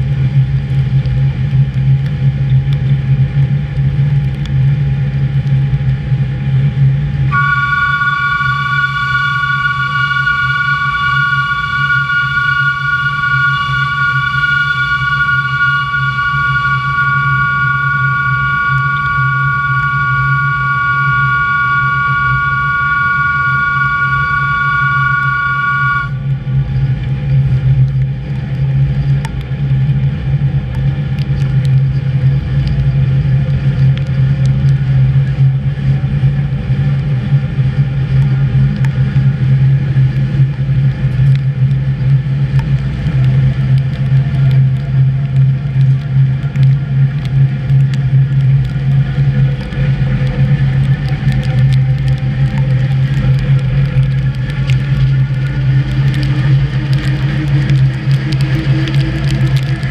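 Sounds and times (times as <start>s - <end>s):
electric train motor drone: 7.2s - 26.4s, 40.5s - 59.9s.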